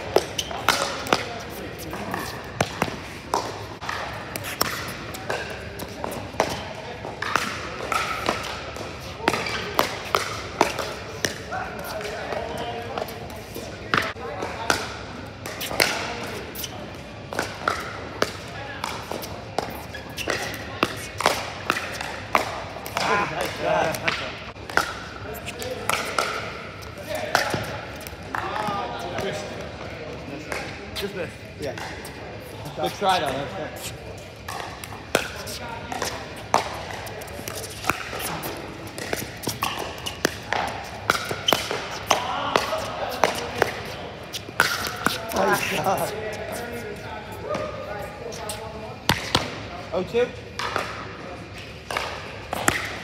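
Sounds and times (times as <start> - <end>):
paddles hitting plastic ball: 34.4 - 45.9, 51.9 - 53.0.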